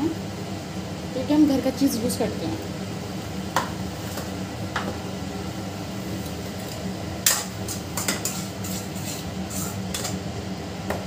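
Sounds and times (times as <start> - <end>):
spoon scraping a pan: 7.2 - 10.2.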